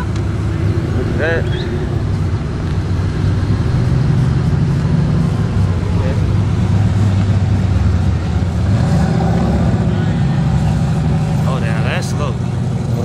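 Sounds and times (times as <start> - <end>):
car engine rumbling past: 0.0 - 13.0.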